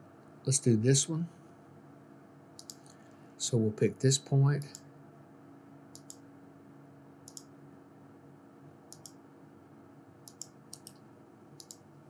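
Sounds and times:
faint steady hum: 0.0 - 12.0
computer mouse clicks: 2.6 - 3.0, 5.9 - 6.2, 7.2 - 7.5, 8.9 - 9.2, 10.2 - 11.9.

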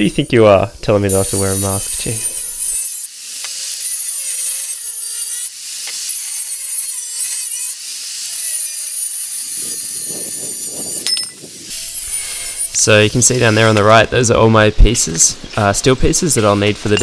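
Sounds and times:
grinder disc cutting metal: 0.0 - 14.0.

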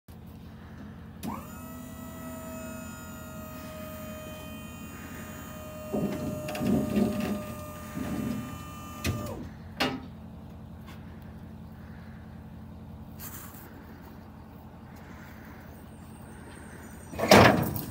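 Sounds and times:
steady low hum: 0.1 - 17.9
hydraulic pump whining: 1.2 - 10.1
steel ramps clunking and rattling: 5.7 - 10.1, 17.2 - 17.9.

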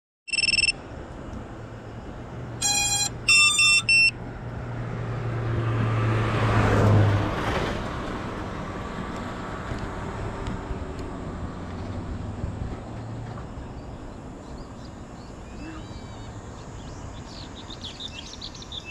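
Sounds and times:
electronic beeps: 0.3 - 0.8, 2.6 - 4.2
car passing: 0.4 - 15.5.

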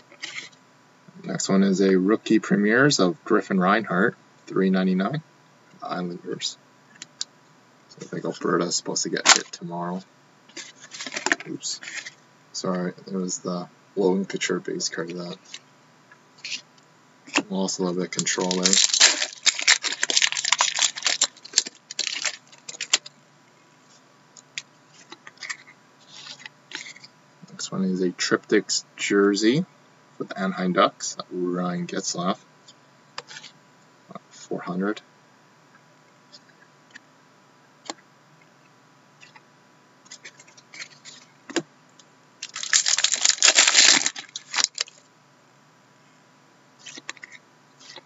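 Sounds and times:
cards clicking and rustling: 10.5 - 12.2, 18.2 - 23.1, 42.4 - 45.0
foil wrapper crinkling: 10.5 - 12.2, 18.1 - 23.1, 42.4 - 45.0.

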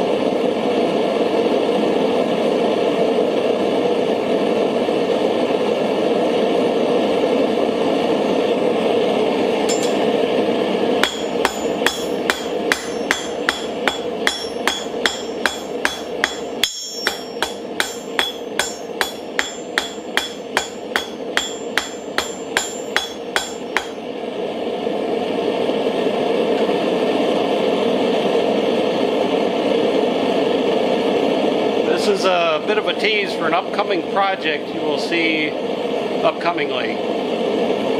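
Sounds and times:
propane forge burner rushing: 0.0 - 37.9
hammer striking steel on anvil: 9.6 - 10.1, 11.0 - 24.1.

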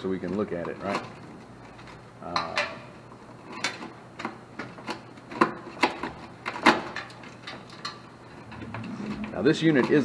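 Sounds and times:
wires rubbing and scraping: 7.0 - 10.0.

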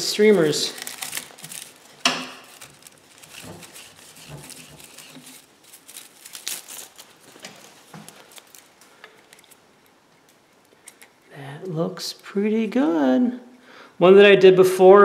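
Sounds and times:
plastic shavings rustling: 0.0 - 11.0.

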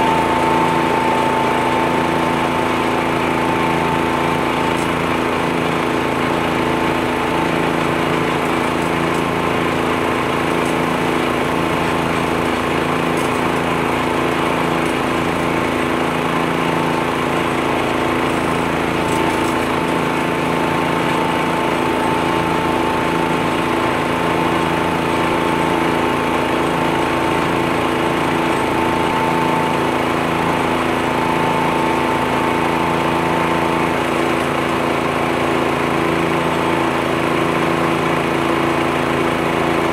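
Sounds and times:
high whine: 0.0 - 5.9
leaf blower running: 0.0 - 39.9
tractor engine running: 0.0 - 39.9.

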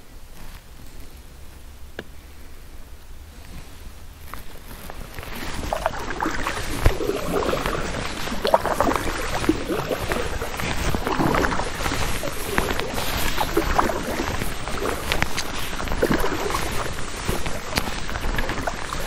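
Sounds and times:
steady watery rush: 2.4 - 19.0
paddle splashing in water: 3.4 - 19.0
water dripping: 4.3 - 19.0.

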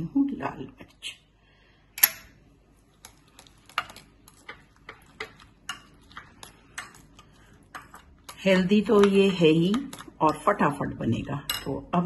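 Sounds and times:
light clicks and taps of mixing: 2.6 - 11.9.

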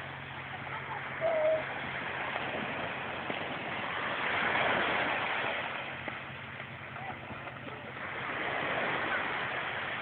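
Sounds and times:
small waves breaking on beach: 0.0 - 10.0.

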